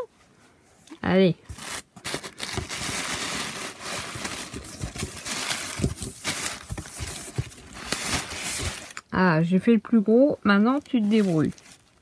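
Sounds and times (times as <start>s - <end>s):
plastic wrapping rustling: 1.4s - 9.1s, 10.6s - 12.0s
cardboard box being handled: 1.5s - 9.0s
scrapes and knocks on box: 4.4s - 7.7s.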